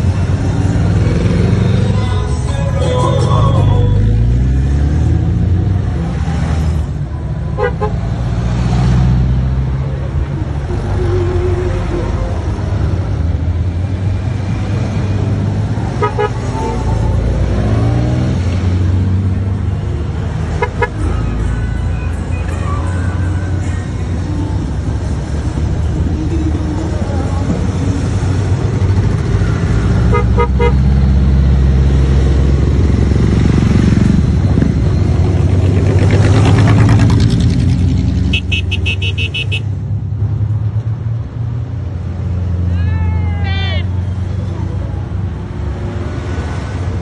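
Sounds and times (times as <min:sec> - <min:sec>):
motorcycles passing: 0:00.0 - 0:47.0
horn toots: 0:07.6 - 0:08.1, 0:15.9 - 0:17.9, 0:20.5 - 0:21.2, 0:30.0 - 0:30.9, 0:38.2 - 0:39.7.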